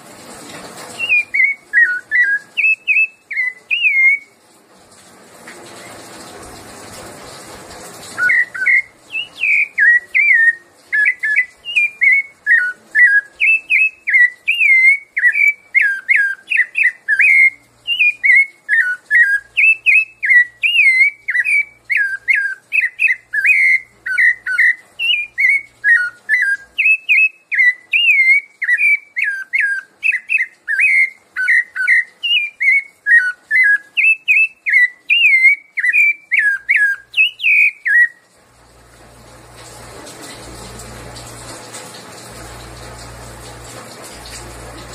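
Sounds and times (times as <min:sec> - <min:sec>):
thrush singing fluty whistles: 0:01.0 - 0:04.4, 0:08.2 - 0:38.3.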